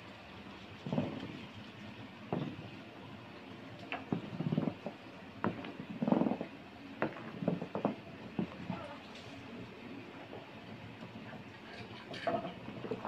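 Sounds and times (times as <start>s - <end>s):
hand sloshing liquid in a vat: 0.0s - 2.9s.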